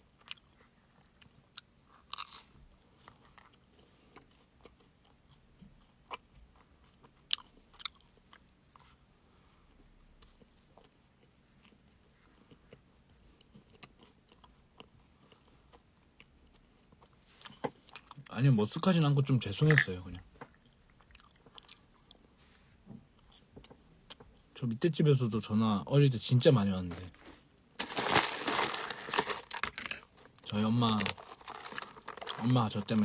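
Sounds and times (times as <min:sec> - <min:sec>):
crunching of wafer cone: 0:02.0 - 0:03.6, 0:27.8 - 0:33.0.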